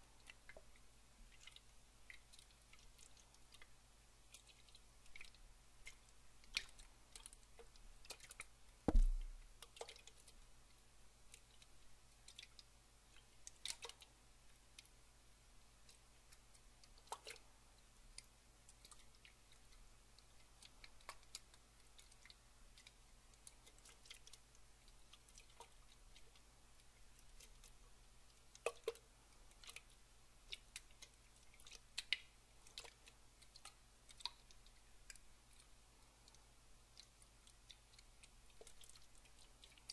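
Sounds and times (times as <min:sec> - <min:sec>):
water dripping: 0:00.0 - 0:15.0, 0:15.8 - 0:39.9
thump: 0:08.9 - 0:09.4.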